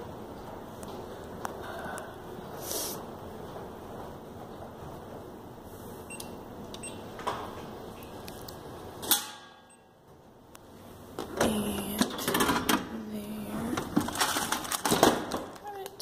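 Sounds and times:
item dropping into vending tray: 13.8s - 15.6s.

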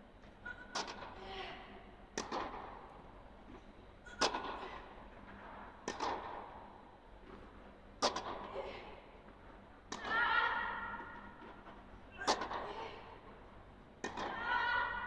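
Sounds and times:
tennis rackets hitting ball: 0.5s - 1.2s, 2.1s - 3.0s, 4.1s - 4.9s, 5.8s - 6.7s, 8.0s - 8.5s, 9.9s - 11.6s, 12.2s - 13.2s, 14.0s - 15.0s.

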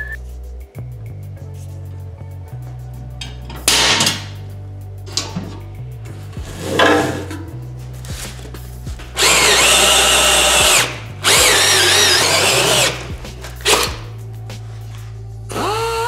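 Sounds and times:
drill cutting metal with grinding whine: 9.2s - 14.0s, 15.5s - 16.0s.

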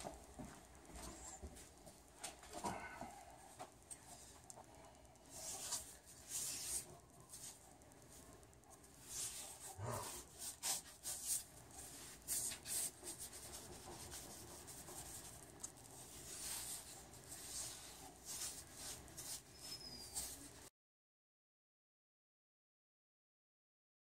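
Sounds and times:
paintbrush swishing on wall: 5.3s - 8.2s, 9.0s - 20.7s.

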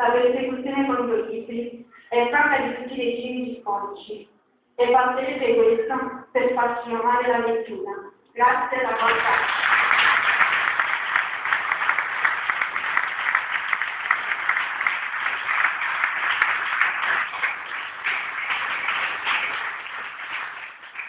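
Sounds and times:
audience applauding: 9.0s - 21.0s.

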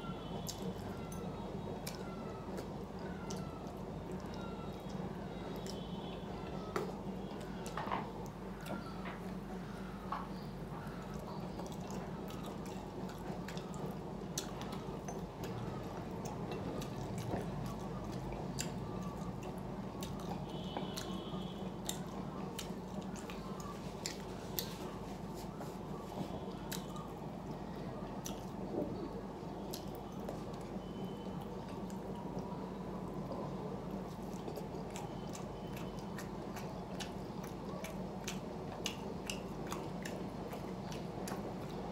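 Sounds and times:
wet chewing and lip smacks: 16.2s - 21.2s, 21.8s - 27.6s, 34.0s - 41.8s.

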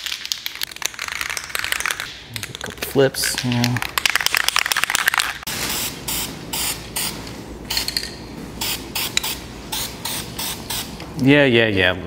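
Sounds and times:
spray paint hissing bursts: 8.6s - 11.0s.

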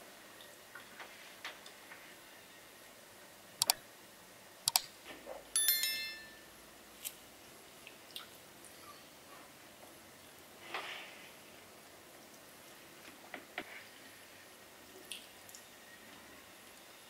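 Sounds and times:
metallic ring: 5.6s - 6.5s.

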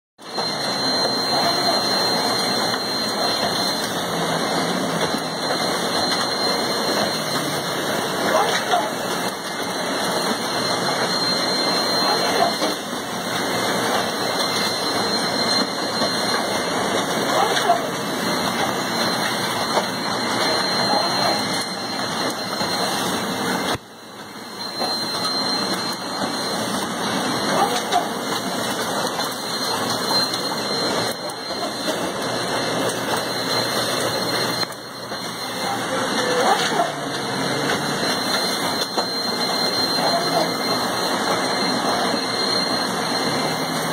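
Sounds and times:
assembly line machinery running: 0.2s - 43.9s.

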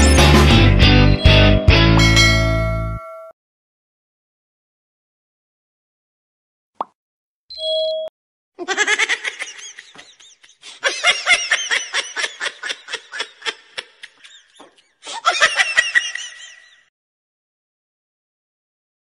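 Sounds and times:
electronic chime: 1.1s - 3.3s
person laughing hard: 8.6s - 16.9s.

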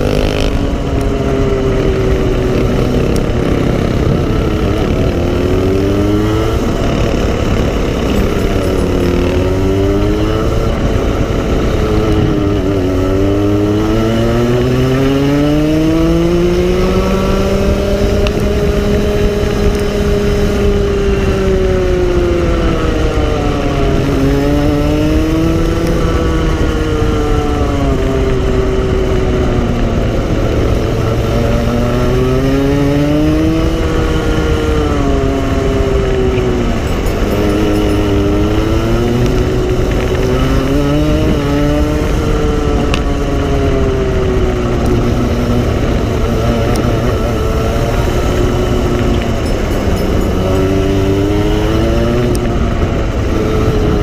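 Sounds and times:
go-kart engine revving: 0.0s - 54.0s.

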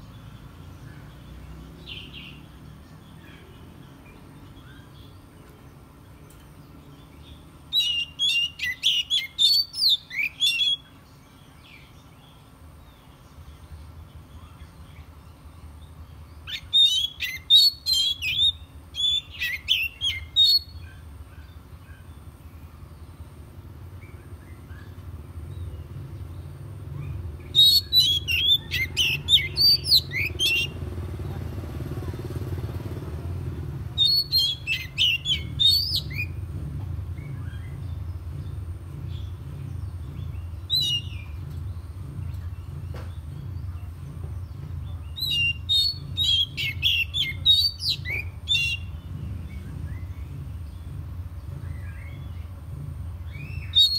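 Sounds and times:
bird singing: 0.0s - 53.9s
low rumble: 22.4s - 53.8s.

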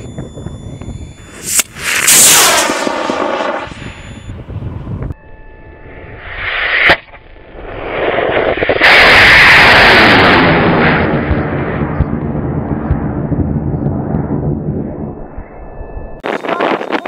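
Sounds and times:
rocket motor roaring: 0.0s - 15.4s
sharp crack: 1.4s - 4.0s, 6.5s - 11.8s.

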